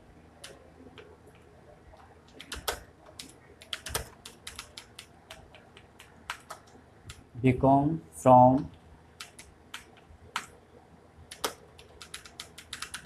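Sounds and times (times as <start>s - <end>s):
keyboard keys clicking: 2.3s - 7.2s, 9.2s - 10.5s, 11.3s - 13.0s.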